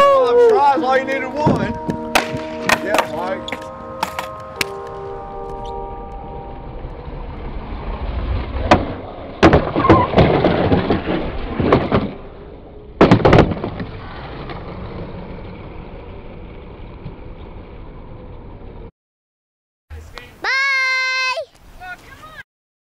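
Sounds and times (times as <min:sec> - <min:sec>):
skateboard wheels rolling on concrete: 0:00.0 - 0:05.8, 0:06.4 - 0:18.9
skateboard landing slaps: 0:02.1 - 0:04.7
skateboard pop: 0:02.1 - 0:05.0
skateboard grinding along a ledge: 0:06.8 - 0:18.9.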